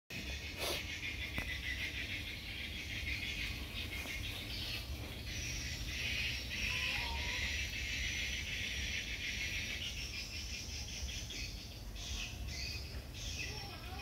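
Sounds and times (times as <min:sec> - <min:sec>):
high-pitched insect chorus: 0:00.2 - 0:14.0.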